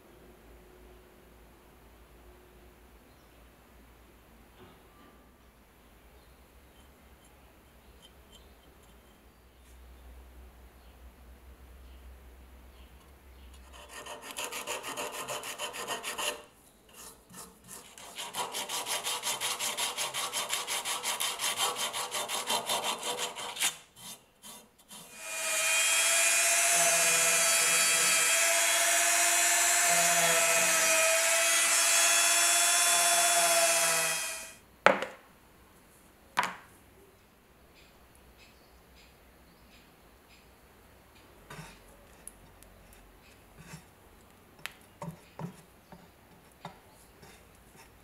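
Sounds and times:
small electric power tool running: 25.1s - 34.6s.

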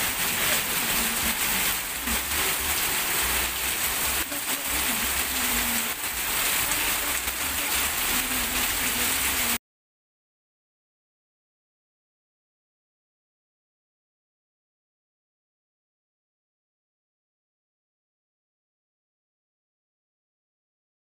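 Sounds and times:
heavy rain on pavement: 0.0s - 9.6s.

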